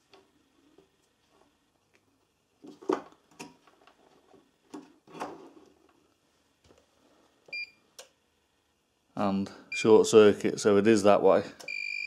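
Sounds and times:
short tester beep: 0:07.5 - 0:07.8, 0:11.7 - 0:12.0.

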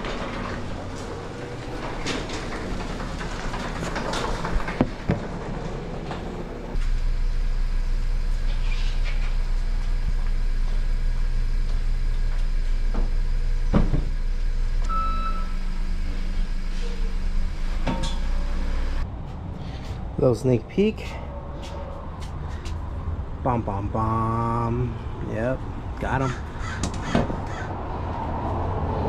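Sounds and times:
garage door rattling up track: 0:00.0 - 0:06.8
low vehicle hum: 0:00.0 - 0:29.0
thump: 0:13.7 - 0:14.1.

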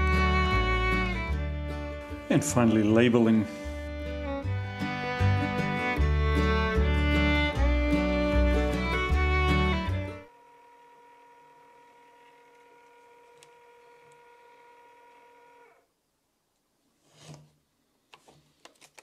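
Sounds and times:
label maker motor whine: 0:09.4 - 0:15.9
faint clicks: 0:12.4 - 0:14.2.

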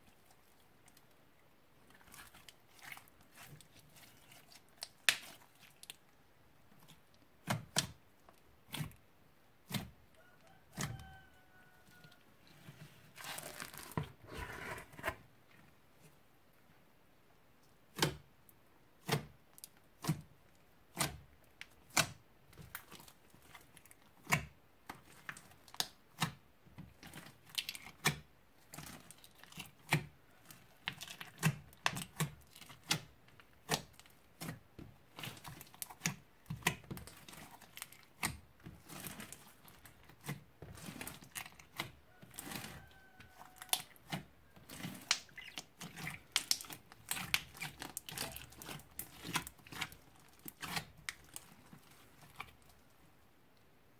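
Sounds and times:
slime crackling: 0:13.1 - 0:14.2, 0:26.9 - 0:53.0
slime clicking and popping: 0:44.8 - 0:51.5.

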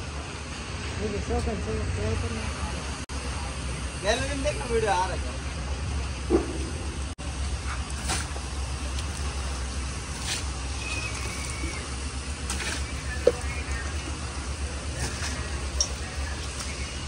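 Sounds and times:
steady low rumble: 0:00.0 - 0:17.0
water splashing against truck: 0:07.4 - 0:17.0.

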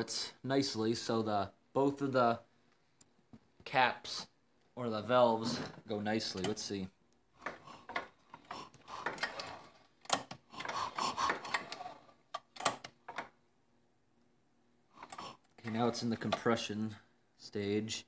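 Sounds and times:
engine turned over by hand: 0:07.4 - 0:13.2.

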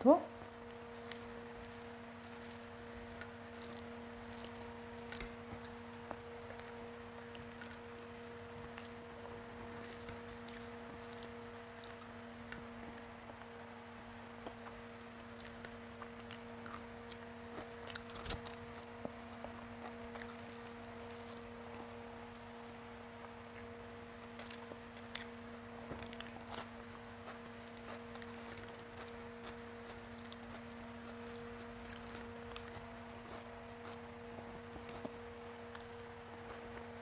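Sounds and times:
fingers squishing food: 0:00.0 - 0:37.0
steady low hum: 0:00.0 - 0:37.0
chewing: 0:00.3 - 0:37.0.

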